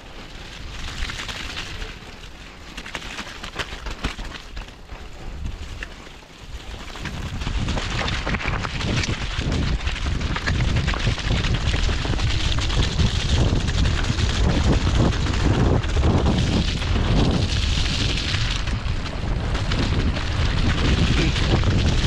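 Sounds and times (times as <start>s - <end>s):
bike knocks and rattles: 2.8s - 6.1s
wind rushing over microphone: 4.8s - 22.0s.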